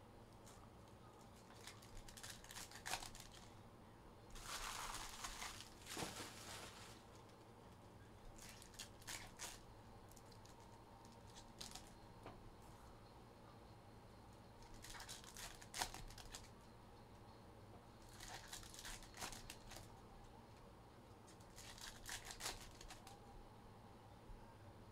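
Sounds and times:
wrappers crinkling and tearing: 0:01.3 - 0:03.5, 0:04.3 - 0:07.3, 0:08.4 - 0:11.9, 0:14.6 - 0:16.5, 0:18.1 - 0:19.9, 0:21.3 - 0:23.2.

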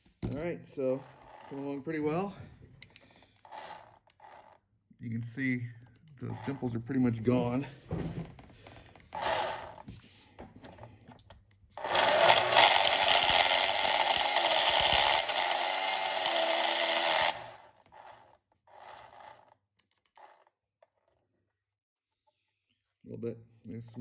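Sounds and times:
electric motor whirring: 0:00.9 - 0:01.9, 0:03.4 - 0:04.6, 0:09.1 - 0:09.9, 0:11.8 - 0:19.5.

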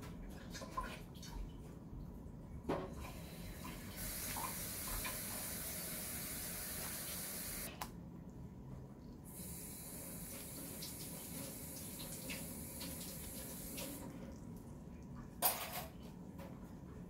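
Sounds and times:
water tap running: 0:03.0 - 0:07.8, 0:09.3 - 0:14.3.

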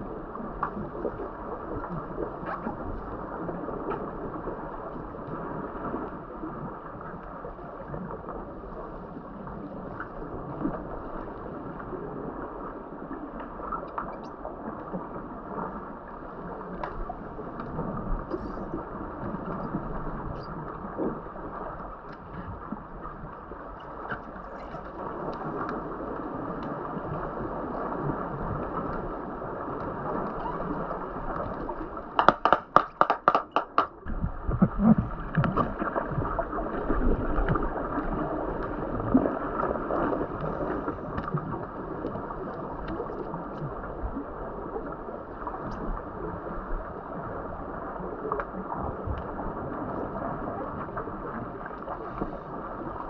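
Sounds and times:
underwater water rush and bubbles: 0:00.0 - 0:53.0
faint underwater clicks: 0:13.3 - 0:44.2.

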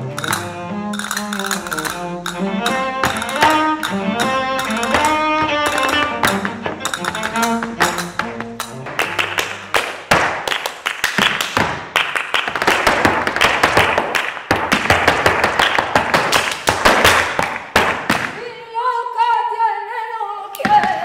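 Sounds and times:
feet stamping on stage floor: 0:00.0 - 0:10.5, 0:11.2 - 0:18.4
rapid hand clapping: 0:00.2 - 0:18.4
woman singing: 0:18.4 - 0:21.0.

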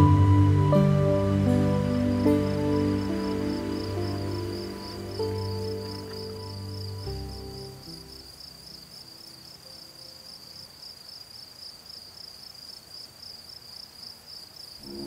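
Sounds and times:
soft background music: 0:00.0 - 0:10.6, 0:14.8 - 0:15.0
cricket chirping: 0:00.0 - 0:15.0.

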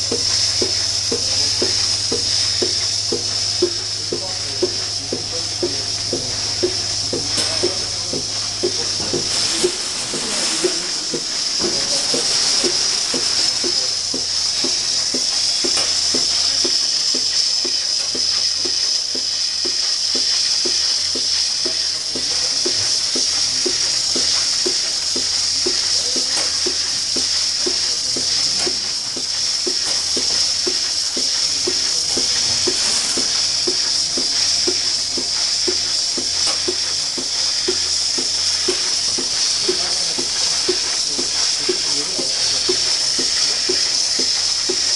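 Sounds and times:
milking machine air hiss: 0:00.0 - 0:44.9
regular pulsing beat: 0:00.0 - 0:44.9.

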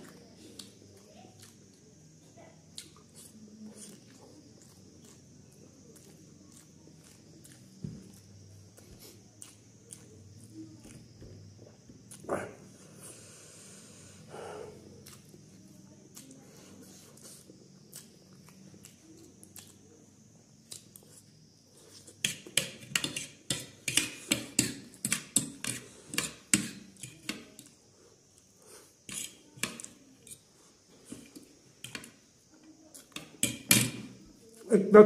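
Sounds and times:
cutlery clinking on a plate: 0:22.2 - 0:27.5, 0:29.1 - 0:30.4, 0:33.1 - 0:34.1.

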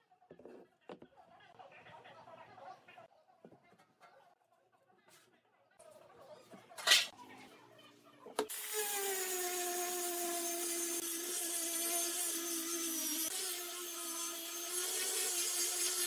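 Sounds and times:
angle grinder sanding wood: 0:08.5 - 0:16.0.

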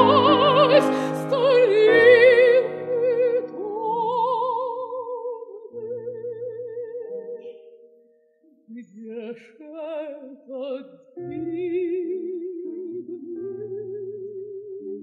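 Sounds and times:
grand piano accompaniment: 0:00.0 - 0:05.0
operatic woman singing: 0:00.0 - 0:07.6, 0:08.7 - 0:15.0.

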